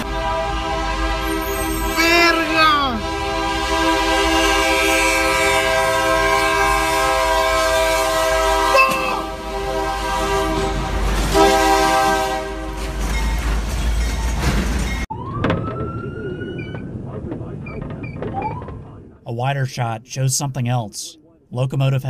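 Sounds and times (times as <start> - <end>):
locomotive air horn: 0.0 - 13.1
train rumbling: 0.0 - 22.0.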